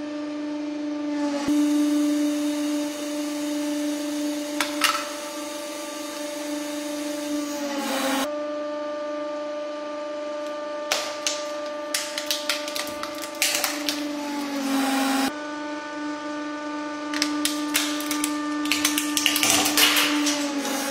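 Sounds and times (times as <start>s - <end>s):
hydraulic press motor humming: 1.1s - 8.3s, 12.7s - 15.3s, 17.0s - 20.9s
plastic cracking and snapping: 10.9s - 14.5s, 17.1s - 20.8s
plastic ball bursting: 10.9s - 14.6s, 17.2s - 20.9s.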